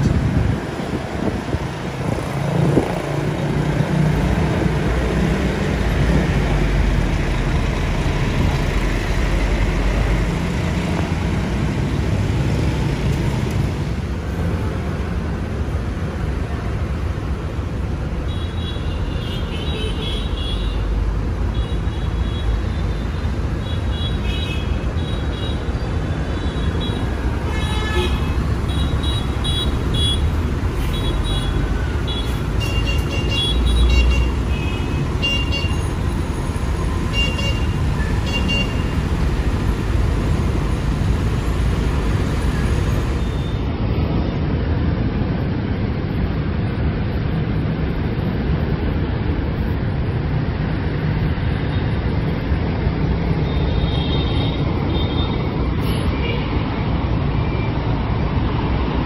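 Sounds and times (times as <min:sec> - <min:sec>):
diesel bus engines rumbling: 0:00.0 - 0:18.2, 0:24.6 - 0:44.2
traffic noise: 0:00.0 - 0:59.0.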